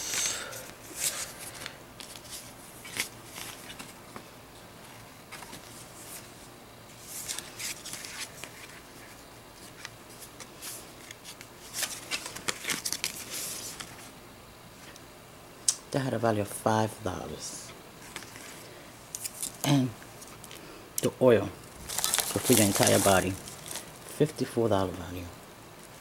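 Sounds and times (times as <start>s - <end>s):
packaging rustling in box: 21.8s - 23.9s.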